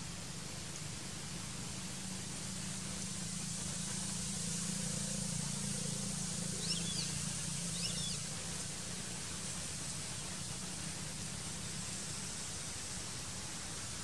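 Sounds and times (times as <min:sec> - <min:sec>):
outdoor background hiss: 0:00.0 - 0:14.0
high chirping calls: 0:06.6 - 0:07.1.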